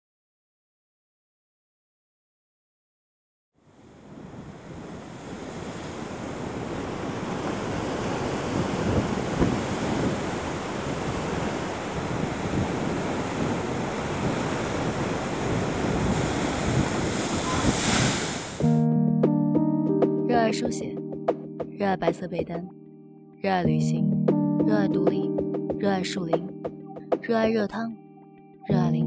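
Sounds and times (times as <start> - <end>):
wind: 3.6 - 18.6
surf crashing on rocks: 4.0 - 18.6.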